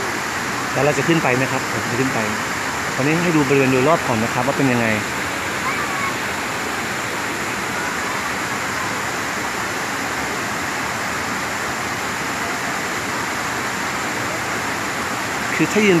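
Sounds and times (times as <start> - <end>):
waterfall pouring into pool: 0.0 - 16.0.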